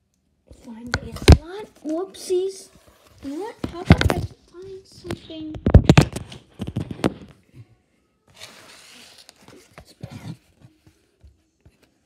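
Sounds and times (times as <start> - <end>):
cardboard scraping: 8.3 - 10.7.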